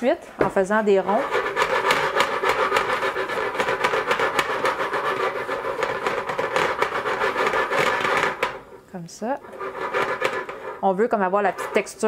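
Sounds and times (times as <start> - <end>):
chopsticks clicking and scraping pan: 1.2 - 8.8, 9.4 - 10.8.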